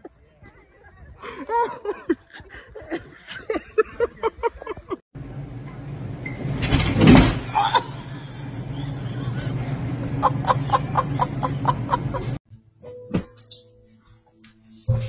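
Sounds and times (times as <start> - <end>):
person laughing: 1.2 - 5.0, 7.5 - 12.4
steady low hum: 7.5 - 12.4.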